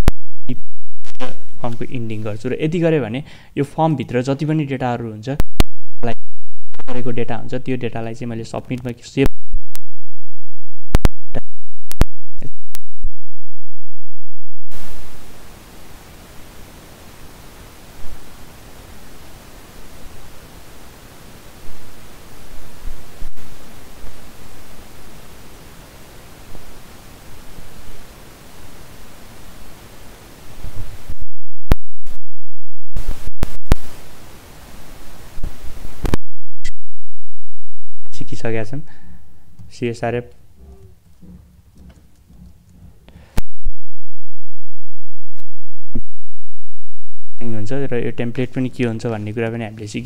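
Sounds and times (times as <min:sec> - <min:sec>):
steady hiss: 0:14.7 - 0:31.2, 0:33.0 - 0:36.1.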